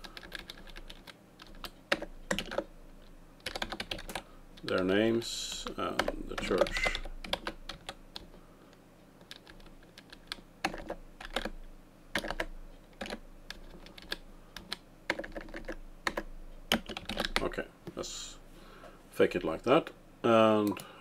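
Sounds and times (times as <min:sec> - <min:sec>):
computer keyboard typing: 0:00.0 - 0:02.7, 0:03.4 - 0:04.9, 0:05.6 - 0:08.3, 0:09.2 - 0:17.5.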